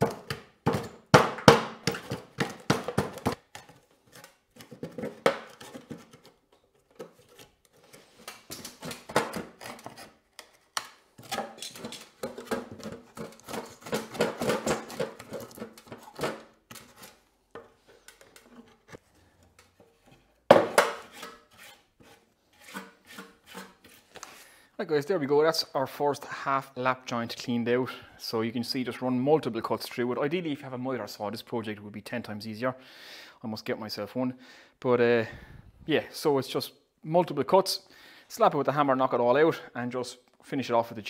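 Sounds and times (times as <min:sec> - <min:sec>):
wood chisel scraping wood: 0:06.9 - 0:10.6, 0:14.8 - 0:24.3.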